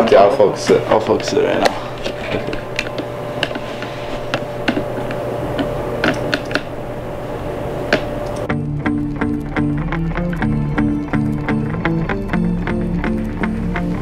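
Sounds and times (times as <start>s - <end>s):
steady hum: 0.0s - 14.0s
music: 8.4s - 14.0s.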